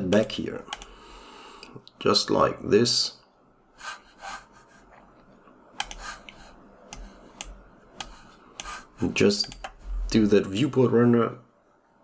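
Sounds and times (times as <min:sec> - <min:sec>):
mouse and keyboard clicks: 0:05.8 - 0:08.8.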